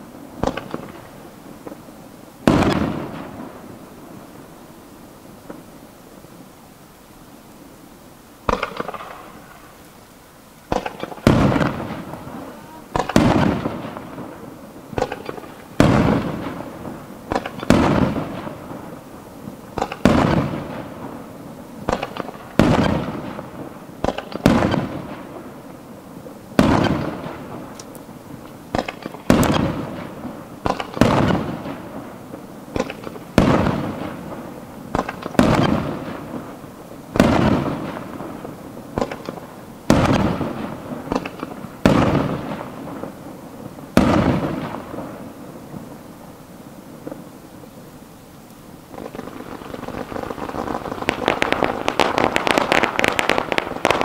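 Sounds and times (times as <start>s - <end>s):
firework shells bursting: 0.4s - 1.8s, 8.4s - 9.9s, 10.6s - 19.0s, 19.7s - 21.2s, 21.8s - 25.3s, 26.6s - 31.9s, 32.7s - 36.4s, 37.2s - 43.1s, 48.9s - 54.0s.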